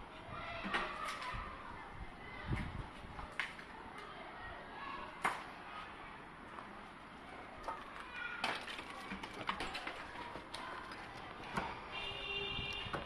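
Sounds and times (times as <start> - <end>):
wooden boards knocking and clattering: 8.4 - 10.6.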